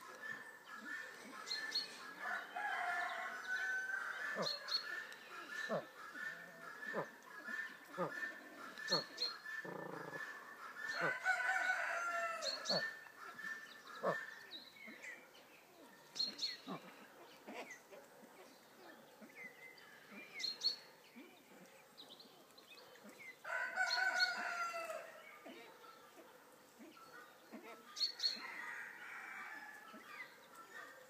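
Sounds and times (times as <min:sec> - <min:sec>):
rooster crowing: 0:02.2 - 0:04.6, 0:10.9 - 0:12.7, 0:23.5 - 0:25.2.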